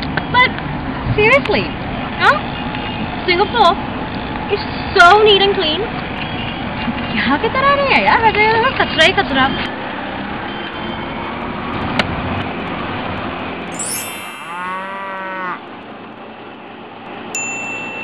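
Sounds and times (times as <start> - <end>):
street ambience: 0.0 - 18.0
cow mooing: 14.5 - 15.6.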